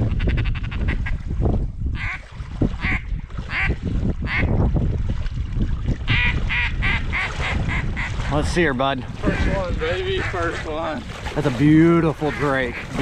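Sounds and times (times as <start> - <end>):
wading through shallow water: 0.8 - 13.0
duck quacking: 6.1 - 8.1, 9.3 - 10.8, 12.2 - 13.0.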